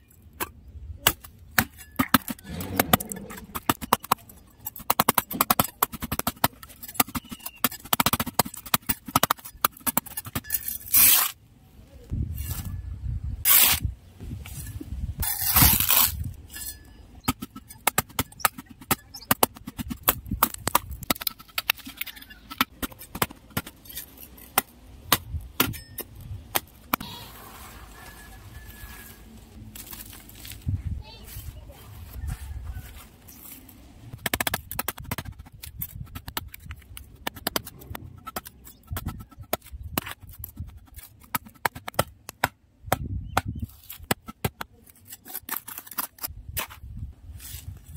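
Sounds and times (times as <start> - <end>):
spade chopping dry earth: 0.4 - 11.3, 17.2 - 27.0, 34.1 - 47.7.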